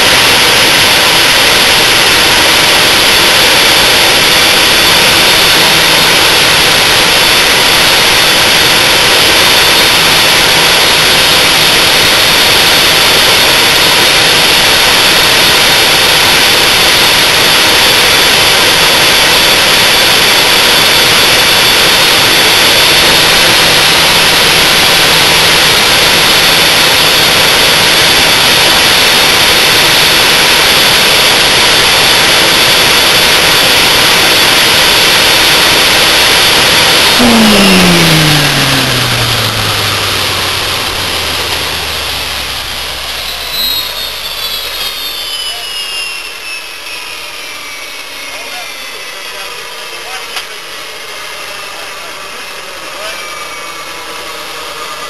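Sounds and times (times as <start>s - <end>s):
jet engine roaring: 0.0s - 55.0s
turbine spooling down: 0.0s - 55.0s.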